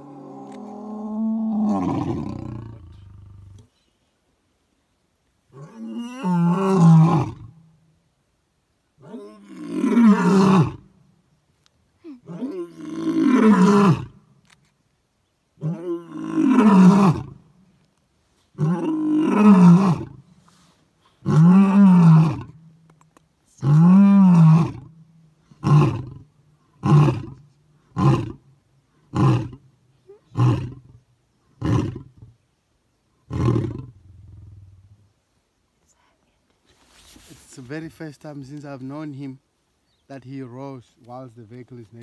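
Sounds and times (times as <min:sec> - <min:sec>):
lion roaring: 0:00.0 - 0:03.6.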